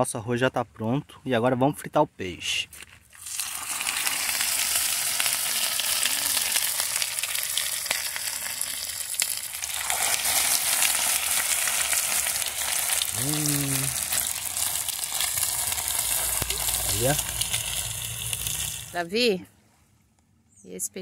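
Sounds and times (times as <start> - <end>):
fish frying in hot oil: 3.2 - 19.0.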